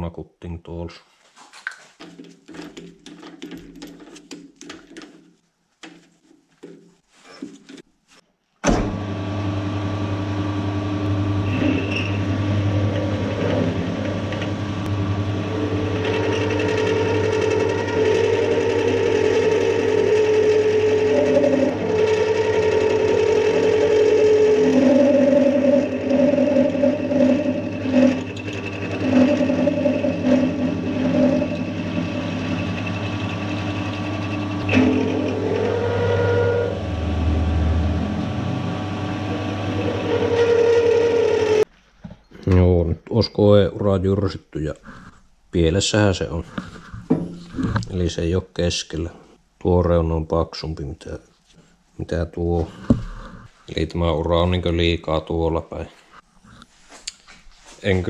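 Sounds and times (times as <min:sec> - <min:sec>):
lathe motor hum: 0:09.0 - 0:41.7
pitched metal cutting tone: 0:11.4 - 0:41.7.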